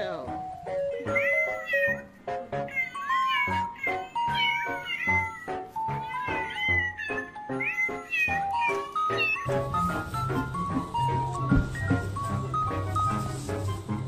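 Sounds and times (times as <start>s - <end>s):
background music: 0.0s - 14.0s
cat meowing: 0.9s - 10.5s.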